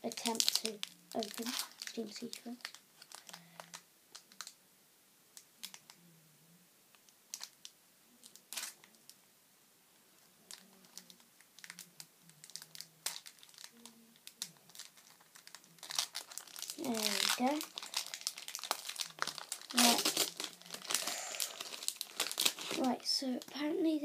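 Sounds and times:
foil wrapper crinkling: 0.0s - 4.6s, 5.6s - 5.9s, 7.3s - 7.6s, 8.2s - 9.0s, 10.5s - 23.6s.

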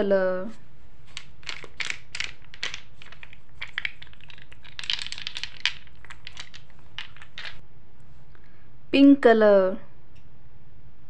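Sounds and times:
paint jars clicking together: 1.1s - 7.6s.

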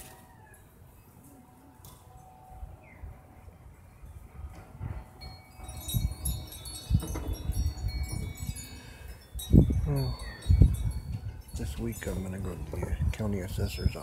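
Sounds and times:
wind chimes ringing: 4.0s - 14.0s.

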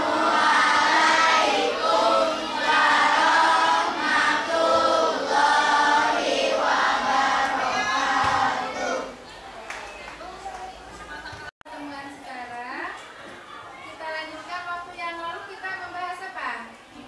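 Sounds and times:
children singing in unison: 0.0s - 9.2s.

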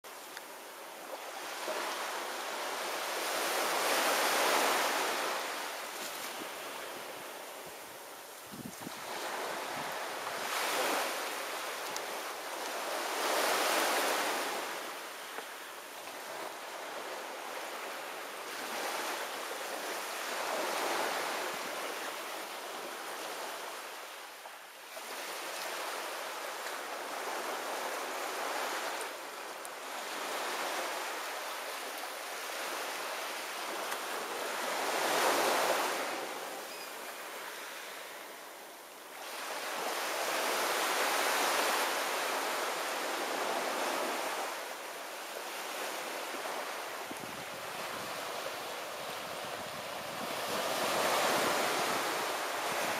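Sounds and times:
ocean waves breaking: 8.8s - 21.9s, 39.2s - 52.9s.

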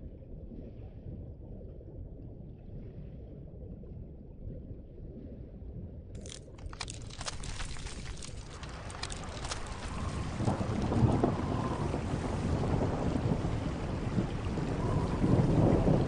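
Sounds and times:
ice crashing into water: 6.2s - 11.1s.

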